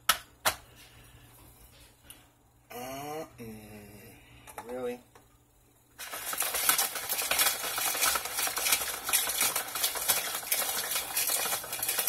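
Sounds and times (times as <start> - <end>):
utensil stirring in a container: 6.0 - 12.0.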